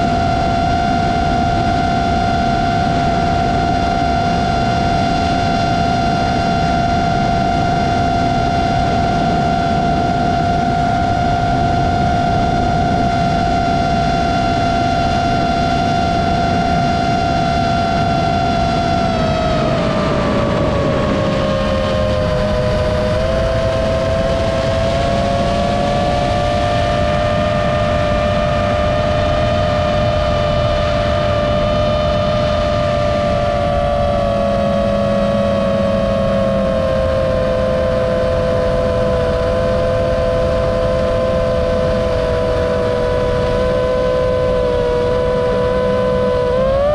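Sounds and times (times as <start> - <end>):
constant rushing noise: 0.0 - 46.9
drone motors whining: 0.0 - 46.9.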